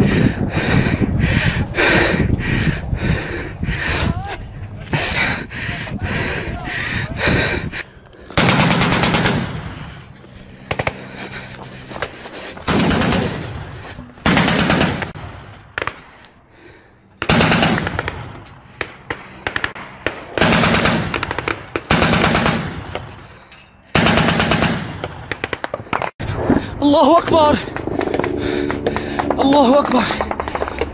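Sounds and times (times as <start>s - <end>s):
machine gun automatic fire: 8.4s - 9.6s, 12.7s - 13.6s, 14.2s - 15.2s, 17.3s - 18.1s, 20.4s - 22.8s, 24.0s - 25.7s.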